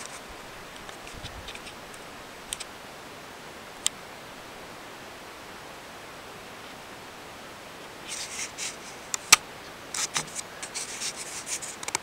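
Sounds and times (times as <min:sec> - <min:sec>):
steady hiss: 0:00.0 - 0:12.0
small sharp clicks: 0:11.6 - 0:12.0.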